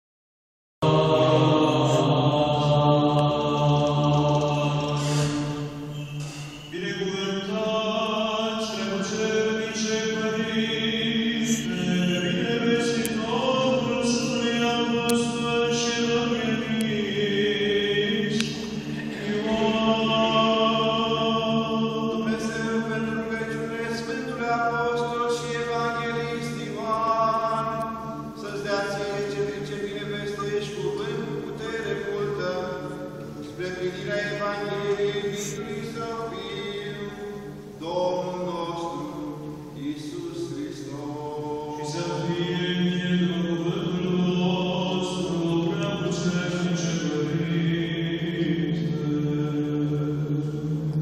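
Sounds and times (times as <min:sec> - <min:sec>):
voices chanting: 0:00.8 - 0:23.0
low drone: 0:10.2 - 0:51.0.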